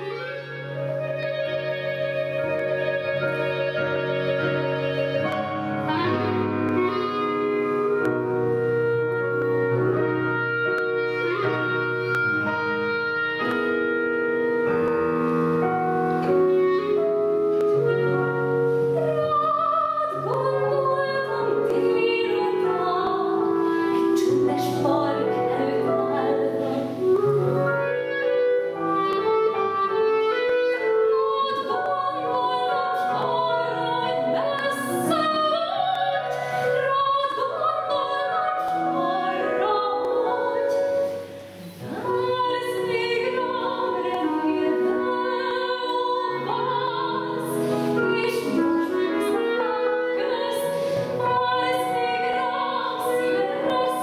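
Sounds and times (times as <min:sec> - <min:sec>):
clarinet: 0:00.0 - 0:54.0
piano: 0:00.0 - 0:54.0
woman singing with vibrato: 0:18.9 - 0:28.1, 0:29.2 - 0:54.0.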